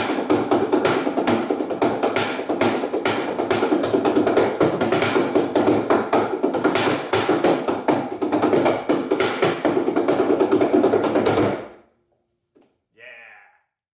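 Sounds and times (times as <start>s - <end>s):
music with percussive beat: 0.0s - 11.6s.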